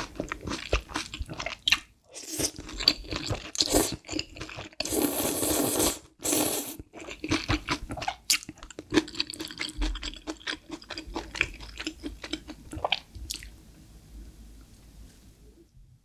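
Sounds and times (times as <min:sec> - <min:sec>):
noodle slurping: 0:04.8 - 0:07.6
wet chewing with mouth clicks: 0:06.8 - 0:13.5.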